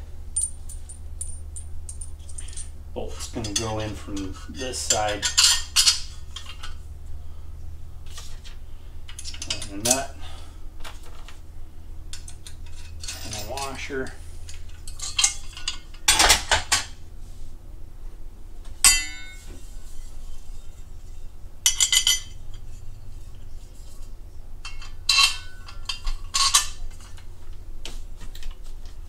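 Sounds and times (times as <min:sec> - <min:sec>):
nuts and bolts clinking on steel: 0:00.4 - 0:06.8, 0:08.4 - 0:10.1, 0:12.1 - 0:17.0, 0:18.8 - 0:19.5, 0:21.7 - 0:22.9, 0:24.6 - 0:27.3
sharp ringing metal clink: 0:18.8 - 0:19.5.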